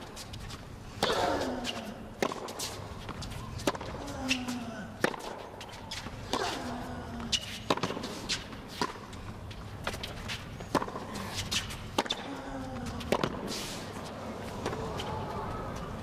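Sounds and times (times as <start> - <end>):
low arena hum: 0.0 - 16.0
racket hitting tennis ball: 1.0 - 4.4, 5.0 - 9.2, 9.8 - 12.3, 13.0 - 13.8.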